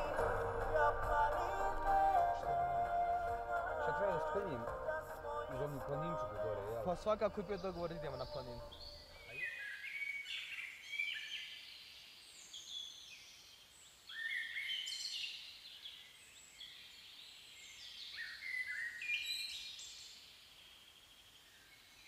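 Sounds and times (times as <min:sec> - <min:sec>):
faint outdoor hush: 0:00.0 - 0:09.6
songbirds chirping: 0:00.0 - 0:22.0.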